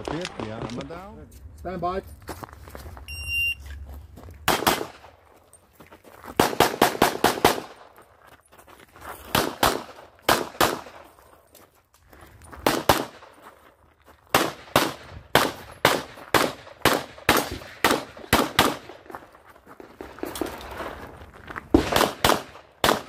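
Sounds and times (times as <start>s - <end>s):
handgun shots in quick pairs: 4.5s - 5.2s, 6.4s - 7.8s, 9.3s - 11.1s, 12.6s - 13.3s, 14.3s - 19.0s, 21.8s - 23.0s.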